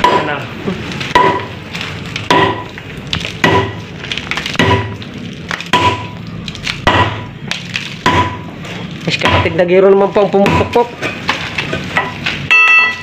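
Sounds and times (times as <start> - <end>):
pounding on concrete: 0.0 - 0.4, 1.1 - 1.6, 2.2 - 3.9, 4.5 - 5.0, 5.6 - 6.2, 6.8 - 7.4, 8.0 - 10.9.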